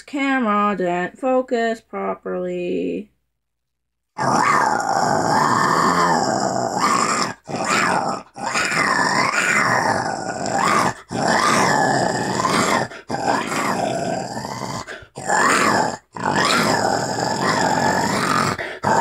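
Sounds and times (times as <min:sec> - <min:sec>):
person growling: 0:04.2 - 0:19.0.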